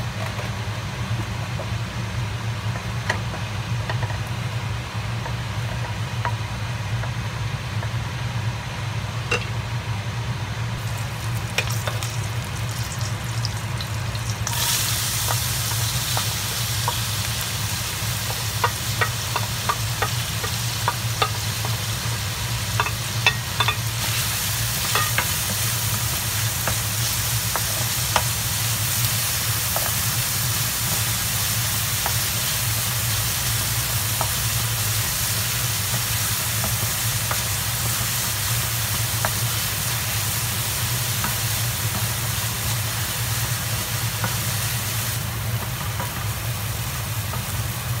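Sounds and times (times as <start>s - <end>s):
low steady hum: 0.0s - 48.0s
onions sizzling in butter: 10.8s - 48.0s
wooden spoon stirring in pan: 10.9s - 47.9s.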